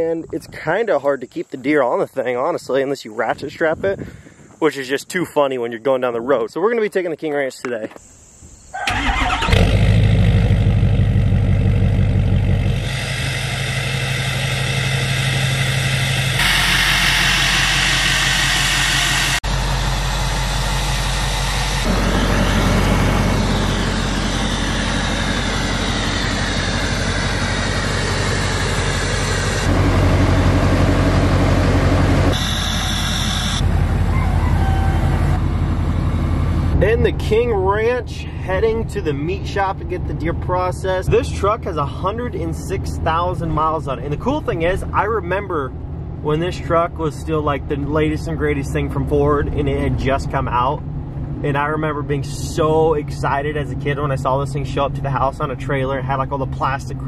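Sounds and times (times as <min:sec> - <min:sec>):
pickup engine idling: 0:08.8 - 0:34.2.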